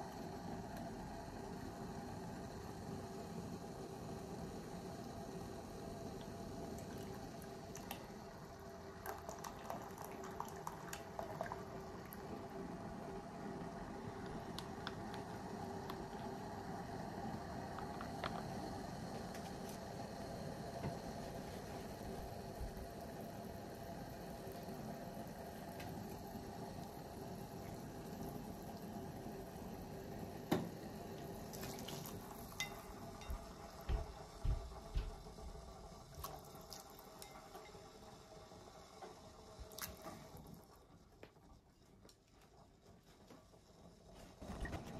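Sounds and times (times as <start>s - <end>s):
broth boiling in saucepan: 0.0s - 44.9s
faint steady hum: 0.0s - 44.9s
liquid dripping and splashing: 31.5s - 32.4s.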